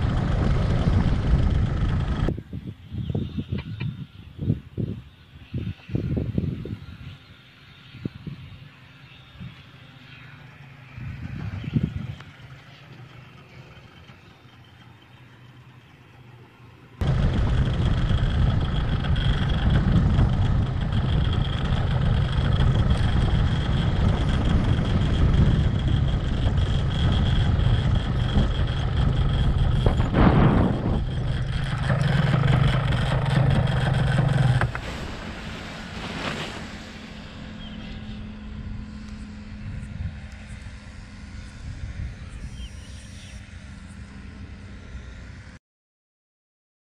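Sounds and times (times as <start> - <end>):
wind noise: 0.0 - 7.3, 10.9 - 12.4, 17.0 - 43.1
paramotor engine and propeller: 0.0 - 45.6.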